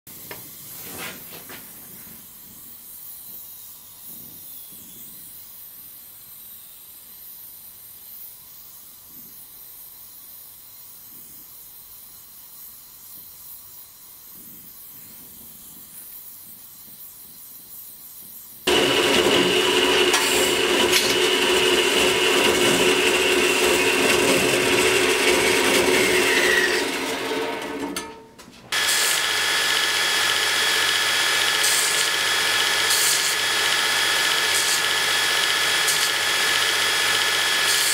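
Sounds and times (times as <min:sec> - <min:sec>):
gas torch hissing: 0:10.9 - 0:27.8, 0:28.7 - 0:37.9
belt grinder running: 0:18.7 - 0:37.9.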